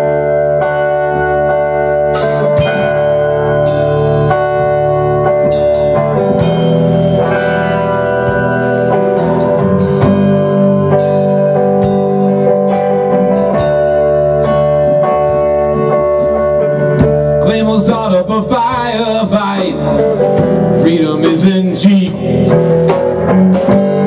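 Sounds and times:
drum kit with cymbal hits: 0.0 - 24.0
electric guitar: 0.0 - 24.0.

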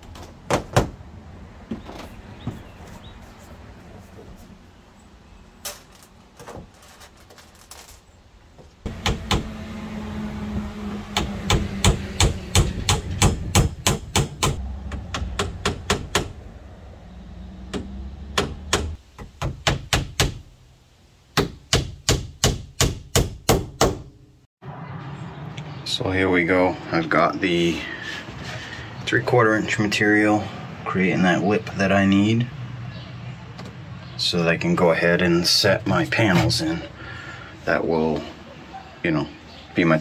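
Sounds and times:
hammer striking wood: 8.9 - 9.7, 11.1 - 16.4, 17.7 - 20.4, 21.4 - 24.1.

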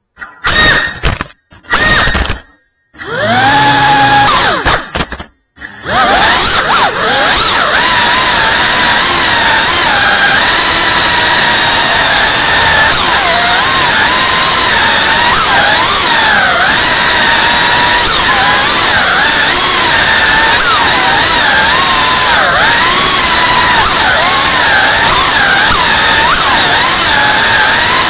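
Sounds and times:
quadcopter motors whining: 3.0 - 4.9, 5.6 - 28.0.

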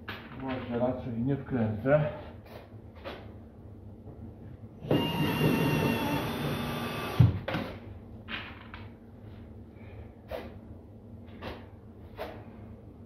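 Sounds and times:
cordless drill whining: 4.8 - 7.4.

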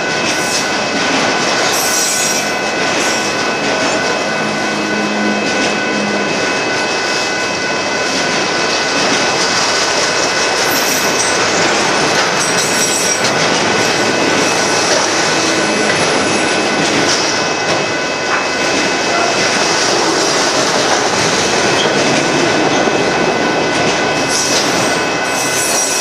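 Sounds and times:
freight cars rumbling on rails: 0.0 - 26.0
high wheel squeal: 24.2 - 26.0.

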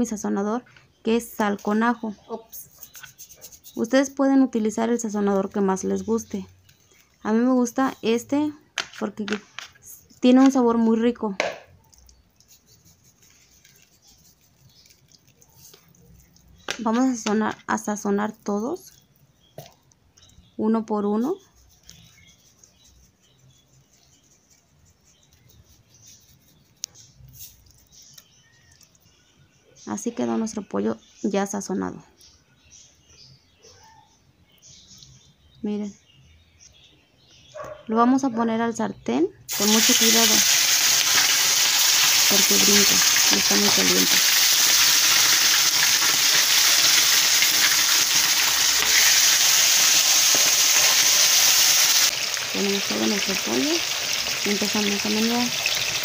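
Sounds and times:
salt sprinkling from a shaker: 1.4 - 4.2, 11.8 - 17.5, 21.2 - 29.1, 39.5 - 53.7
chicken sizzling in hot oil: 39.5 - 56.0.

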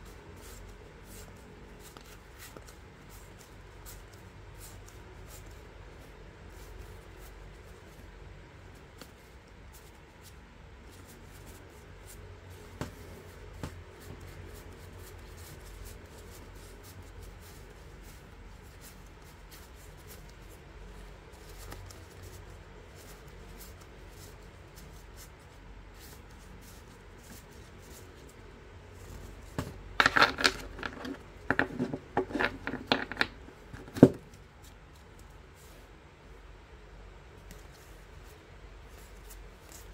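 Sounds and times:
playing cards sliding and flicking: 0.3 - 5.6.

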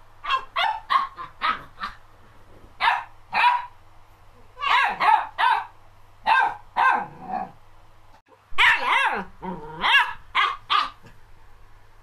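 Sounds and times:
puppy yapping: 0.2 - 2.0, 2.8 - 3.7, 4.6 - 7.6, 8.6 - 11.2.

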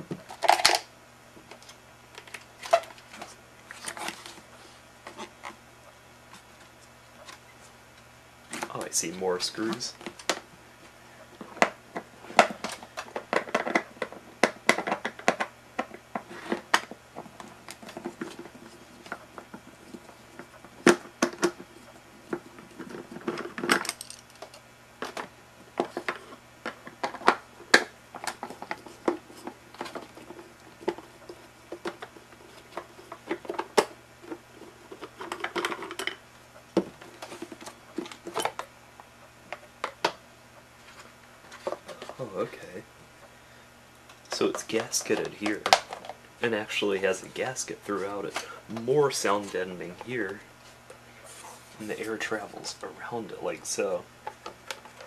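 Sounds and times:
plastic parts clicking and knocking: 0.0 - 0.8, 11.4 - 21.7, 22.3 - 36.2
plastic scraping and rubbing: 1.5 - 5.6.

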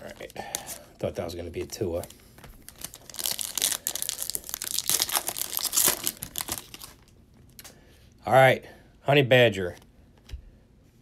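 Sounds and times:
foil wrapper tearing and crinkling: 1.6 - 7.1.

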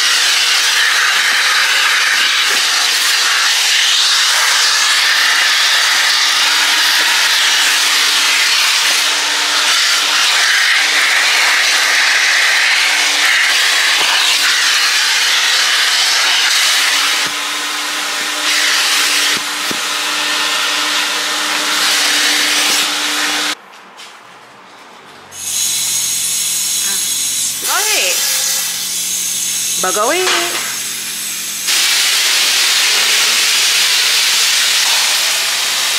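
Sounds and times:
vacuum motor hum: 0.0 - 23.6.

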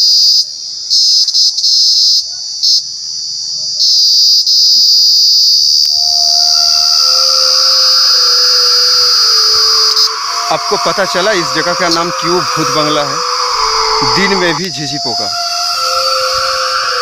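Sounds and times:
shrill insect chorus: 0.0 - 17.0
low droning tone: 5.9 - 17.0.

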